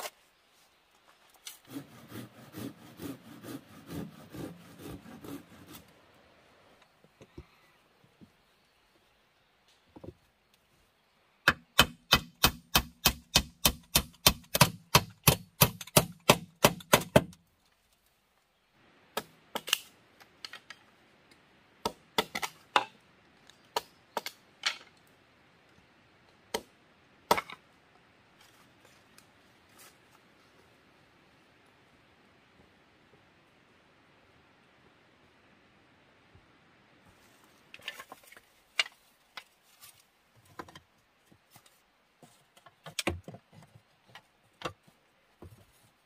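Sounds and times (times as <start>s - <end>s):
blade splitting bamboo: 1.4s - 5.9s.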